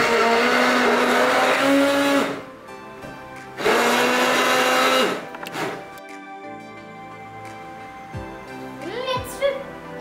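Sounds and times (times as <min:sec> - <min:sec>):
electric hand blender whining: 0:00.0 - 0:02.5, 0:03.6 - 0:06.0.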